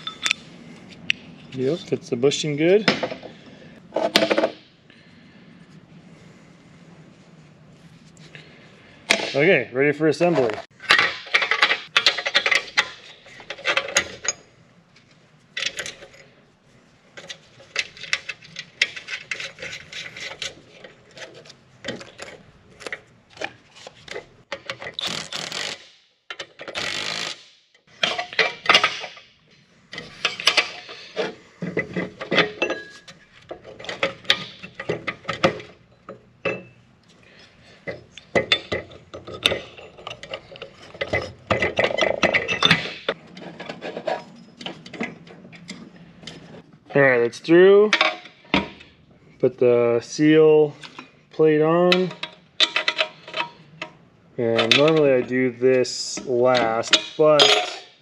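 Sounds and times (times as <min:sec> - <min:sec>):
metal parts clinking: 0:10.8 - 0:14.5, 0:15.6 - 0:16.3, 0:29.9 - 0:36.8, 0:37.8 - 0:46.5, 0:51.8 - 0:53.9, 0:56.5 - 0:58.0
metallic rubbing bursts: 0:24.9 - 0:26.0.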